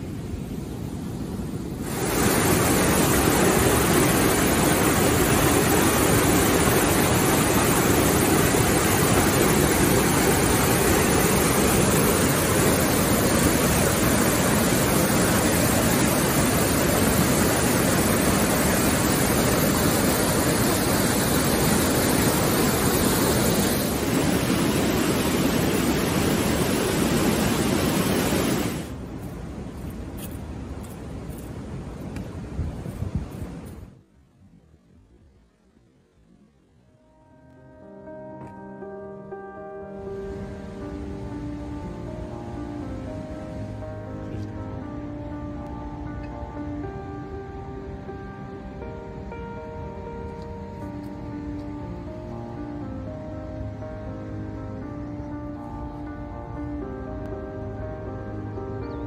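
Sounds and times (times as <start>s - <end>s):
floodwater rushing over weir: 1.8s - 29.0s.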